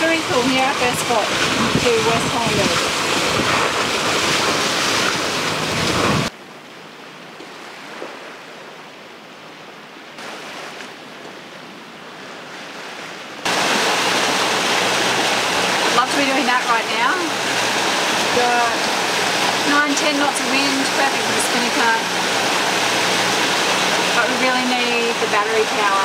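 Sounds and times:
rush of wind and sea water: 0.0s - 26.0s.

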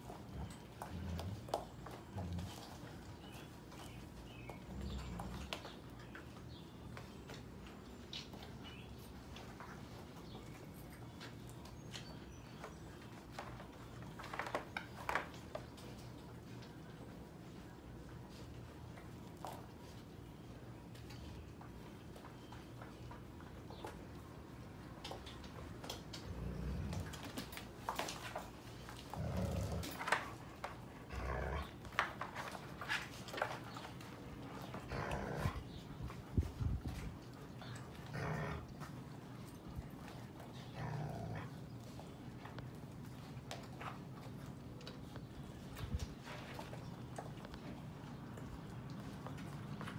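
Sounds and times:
puppies growling: 0.0s - 6.7s, 25.2s - 43.4s
puppies scuffling on a rug: 0.0s - 49.9s.

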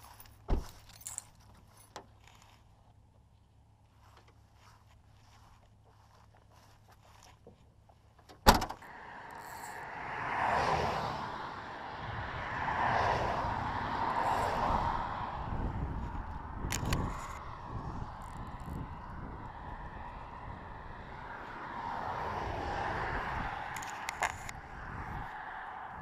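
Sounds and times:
cars passing on road: 0.0s - 26.0s
car trunk lid slamming: 8.4s - 8.8s.

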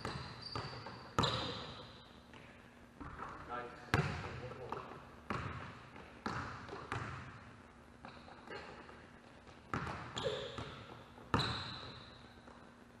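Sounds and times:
sneaker squeaks: 0.0s - 4.4s, 8.0s - 12.8s
basketballs bouncing on wooden floor: 0.0s - 8.6s, 9.4s - 12.6s.

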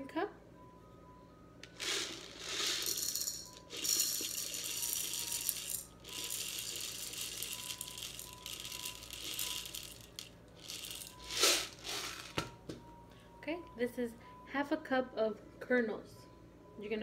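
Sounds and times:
popcorn kernels pouring into cup: 1.6s - 12.4s.

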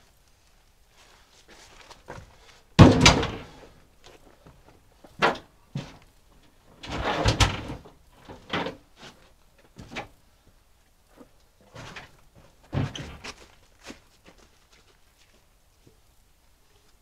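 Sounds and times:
log landing with loud thud: 2.0s - 3.8s, 11.7s - 14.0s
wood knocking and scraping: 6.8s - 10.2s, 11.2s - 15.0s.

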